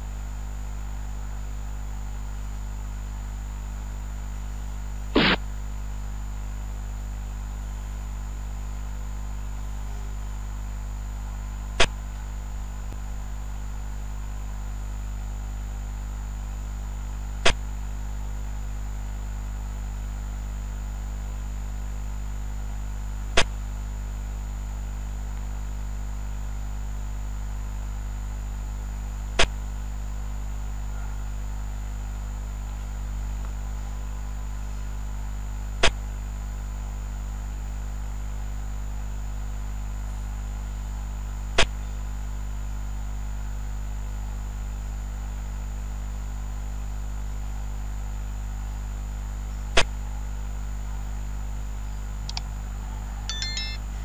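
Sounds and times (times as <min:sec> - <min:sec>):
low electrical hum: 0:00.0 - 0:47.7, 0:51.4 - 0:54.0
game piece clicks: 0:53.3 - 0:53.8.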